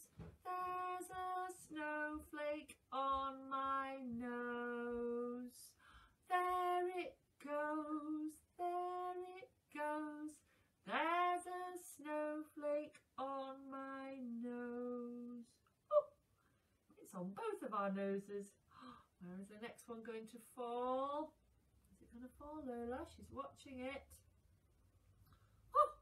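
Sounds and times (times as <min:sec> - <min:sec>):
woman singing unaccompanied: 0:00.0 - 0:16.1.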